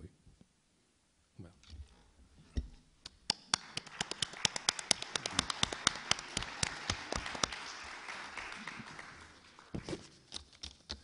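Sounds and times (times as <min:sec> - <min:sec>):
audience clapping: 0:03.1 - 0:10.4
close hand claps: 0:03.2 - 0:10.2.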